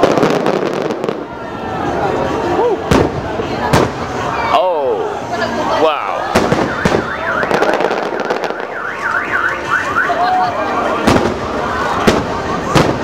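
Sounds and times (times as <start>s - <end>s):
firework bangs: 0.0s - 1.5s, 2.8s - 4.3s, 6.2s - 9.7s, 10.8s - 13.0s
fireworks display: 0.0s - 13.0s
car alarm wailing: 6.3s - 13.0s.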